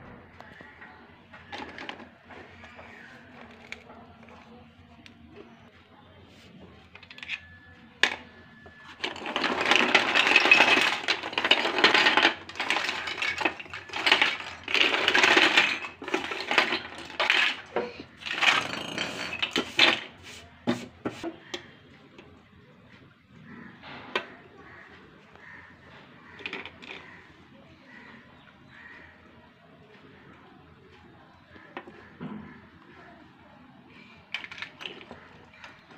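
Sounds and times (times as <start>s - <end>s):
plastic toy pieces clattering: 1.4s - 4.5s, 6.8s - 21.2s, 26.2s - 27.2s, 34.0s - 35.9s.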